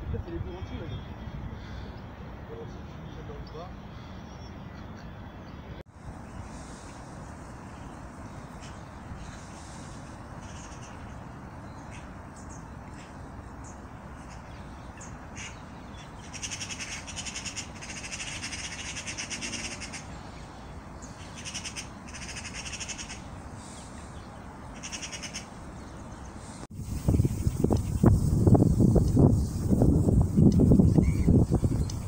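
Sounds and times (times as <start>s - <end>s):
bird harsh rattling calls: 10.4s - 11.1s, 14.3s - 20.1s, 21.1s - 23.8s, 24.8s - 25.5s
wind on microphone: 26.7s - 32.0s.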